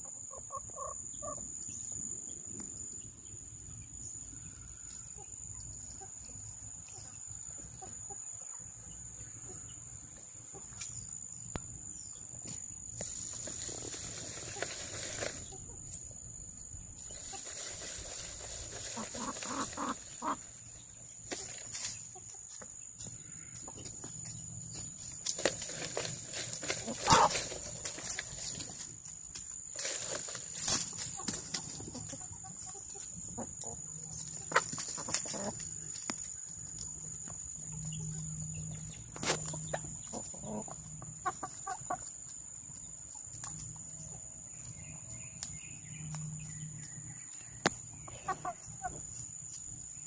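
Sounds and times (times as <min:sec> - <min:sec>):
chickens clucking: 0:00.0 - 0:01.6, 0:04.3 - 0:11.2, 0:12.4 - 0:16.1, 0:17.0 - 0:45.5, 0:47.3 - 0:49.8
dry leaves rustling: 0:13.0 - 0:16.1, 0:17.0 - 0:22.6, 0:24.6 - 0:33.2, 0:34.0 - 0:37.2.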